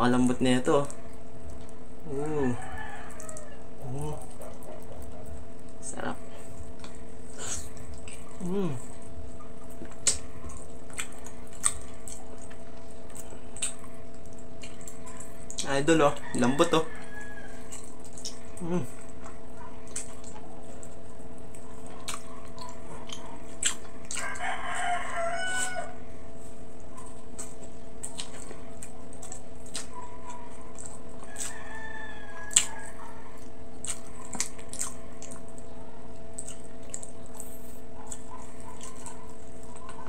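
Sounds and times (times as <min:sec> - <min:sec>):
steady hum: 0:00.0 - 0:31.6, 0:32.3 - 0:40.0
wet chewing and lip-smacking: 0:00.7 - 0:40.0
rooster crowing: 0:02.1 - 0:04.2, 0:15.8 - 0:17.8, 0:24.0 - 0:26.2, 0:31.2 - 0:33.4.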